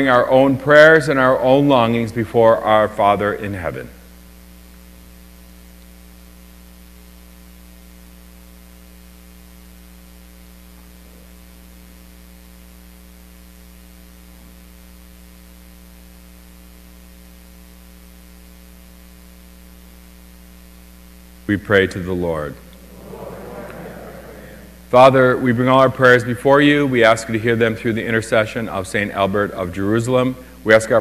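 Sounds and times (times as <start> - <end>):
electrical mains hum: 0.0 - 31.0
faint hiss: 22.3 - 27.4.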